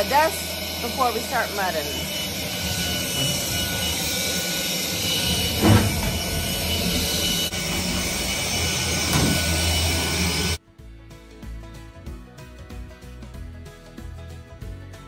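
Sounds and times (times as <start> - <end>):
stick vacuum running: 0.0 - 10.6.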